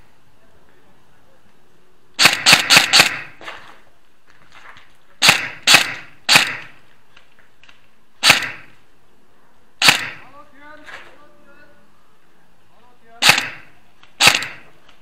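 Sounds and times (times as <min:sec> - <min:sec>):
airsoft gun shots: 0:02.2 - 0:03.4, 0:05.2 - 0:06.8, 0:08.2 - 0:08.8, 0:09.8 - 0:10.3, 0:13.2 - 0:14.8.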